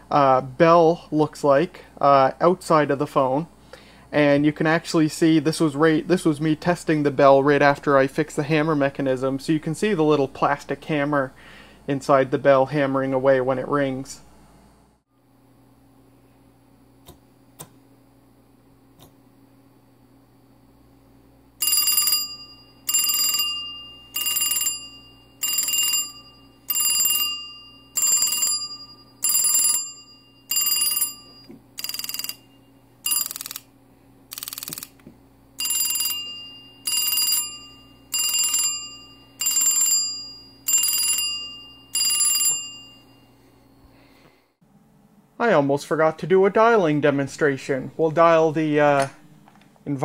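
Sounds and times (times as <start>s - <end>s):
telephone ringer bell ringing: 21.6s - 33.7s, 35.6s - 43.8s.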